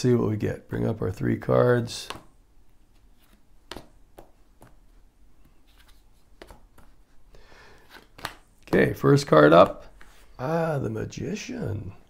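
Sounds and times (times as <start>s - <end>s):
cards clicking and tapping: 2.0s - 2.4s, 3.0s - 4.8s, 5.4s - 7.0s, 7.7s - 10.2s.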